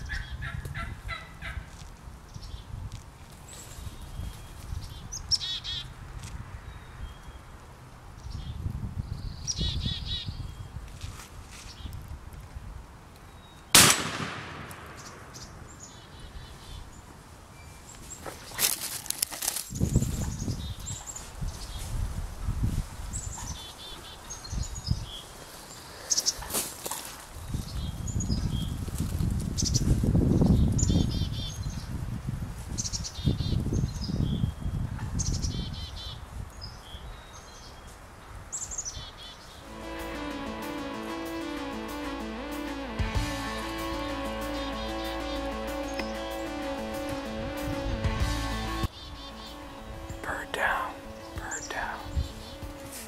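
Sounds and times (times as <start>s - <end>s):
shotgun blast with echo: 13.8s - 15.9s
songbird chirping: 14.7s - 18.8s, 38.6s - 53.0s.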